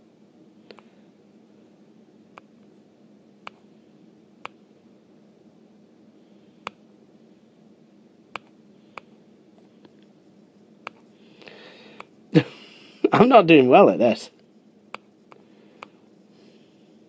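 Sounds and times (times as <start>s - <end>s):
faint steady hum: 0.0s - 17.0s
stylus tapping on touchscreen: 10.8s - 11.0s.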